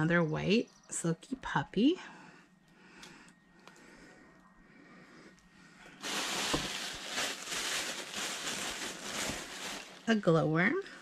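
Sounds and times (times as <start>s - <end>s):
faint clicks: 2.6s - 4.5s
toys and packaging rustling: 6.0s - 10.3s.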